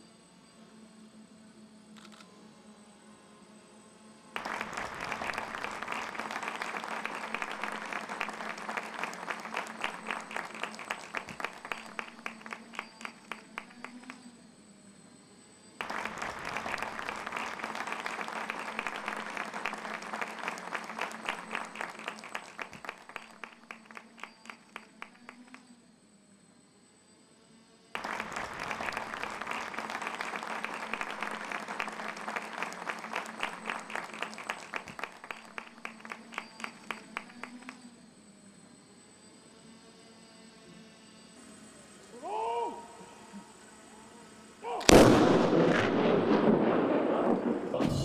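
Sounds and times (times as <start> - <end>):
audience applauding: 4.4 - 14.2, 15.8 - 25.6, 28.0 - 37.8.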